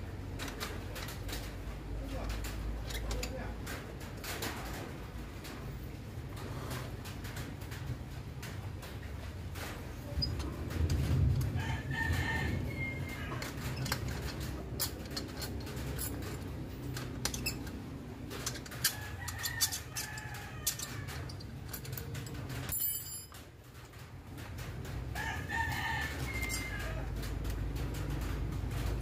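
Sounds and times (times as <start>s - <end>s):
rooster crowing: 11.6s - 13.6s, 25.1s - 27.2s.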